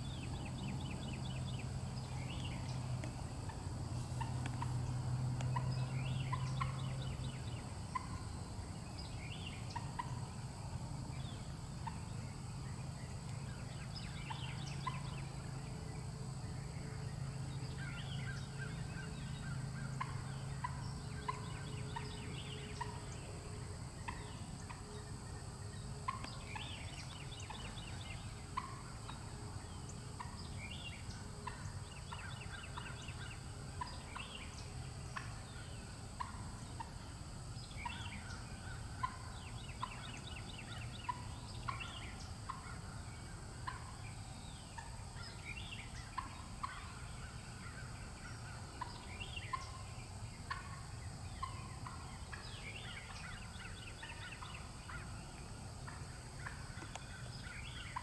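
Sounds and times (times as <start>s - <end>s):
woodland birdsong chirps: 0.0s - 10.2s, 56.6s - 58.0s
low steady rumble: 0.0s - 58.0s
turkey gobbling: 7.9s - 8.2s, 9.7s - 10.2s, 28.5s - 29.1s, 36.2s - 36.9s, 37.9s - 40.1s, 43.6s - 44.0s, 46.1s - 49.8s, 50.5s - 53.4s, 54.0s - 55.0s, 55.8s - 58.0s.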